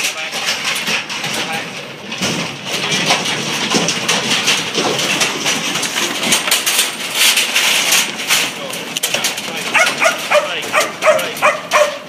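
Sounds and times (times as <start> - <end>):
sheep hooves clattering on ramp: 0.0 - 12.0.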